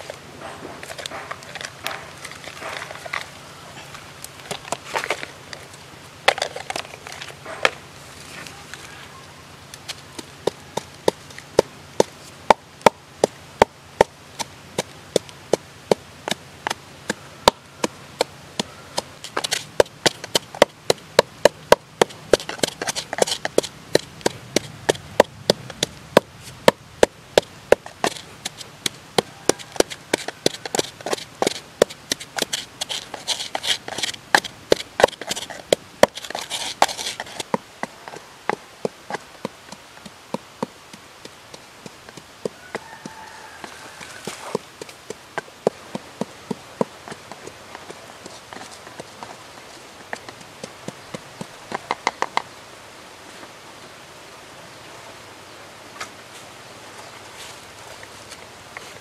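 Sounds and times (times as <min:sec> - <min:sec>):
gritty grinding scrape: 0:00.0 - 0:09.0, 0:18.6 - 0:26.7, 0:27.7 - 0:38.2
pestle pounding in a mortar: 0:10.2 - 0:38.2, 0:38.8 - 0:49.1.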